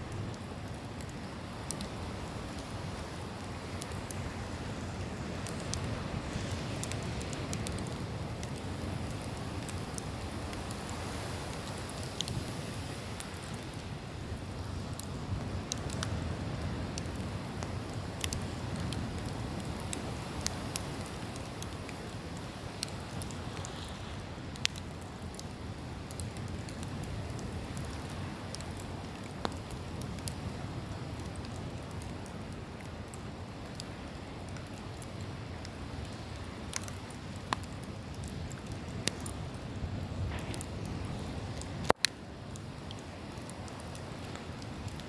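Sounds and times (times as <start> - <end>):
ocean surf: 0.0 - 24.9
campfire crackling and popping: 0.0 - 45.0.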